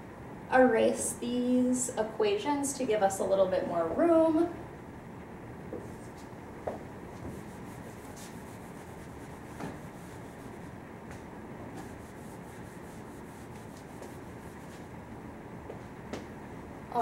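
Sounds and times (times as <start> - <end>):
eraser rubbing on whiteboard: 7.2 - 10.7, 11.8 - 14.9.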